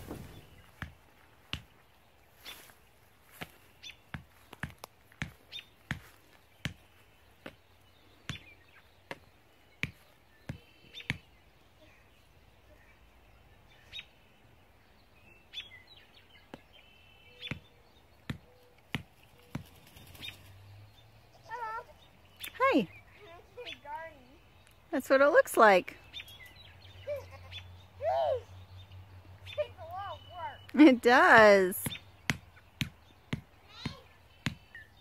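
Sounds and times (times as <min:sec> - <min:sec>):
high bird chirps: 0:12.5 - 0:24.8, 0:26.0 - 0:35.0.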